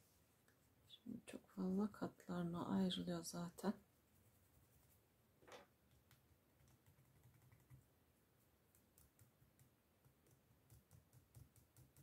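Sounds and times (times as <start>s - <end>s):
soft yarn rustle: 0.0s - 1.9s.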